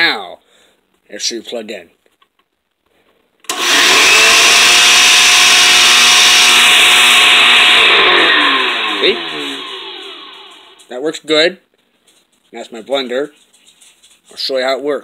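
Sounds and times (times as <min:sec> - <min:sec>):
blender motor whining: 0:03.5 - 0:10.9.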